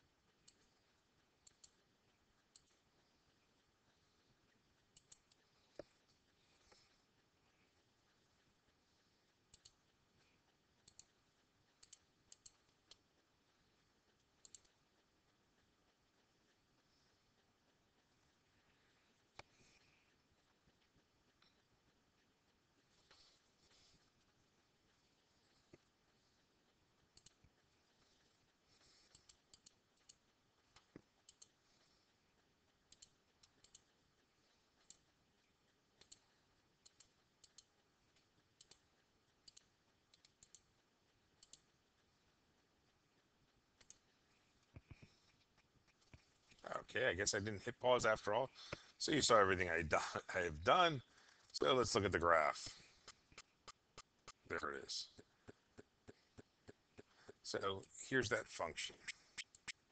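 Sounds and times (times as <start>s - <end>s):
computer mouse clicks: 0.3s - 3.7s, 4.8s - 6.0s, 9.2s - 13.2s, 14.1s - 15.0s, 27.0s - 31.9s, 32.8s - 34.0s, 34.8s - 41.8s, 43.8s - 46.6s, 59.0s - 59.9s.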